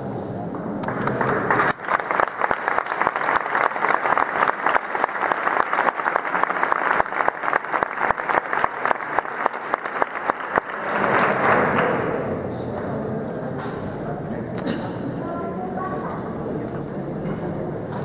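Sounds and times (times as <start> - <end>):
audience applauding: 0.8 - 12.1.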